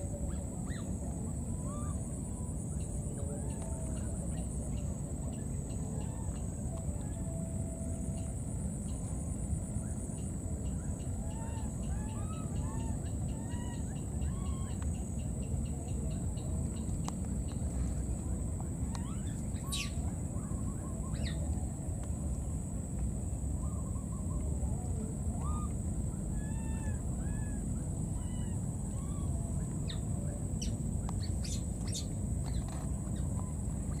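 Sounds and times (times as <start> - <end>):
bird chirps and calls: 19.0 - 20.0.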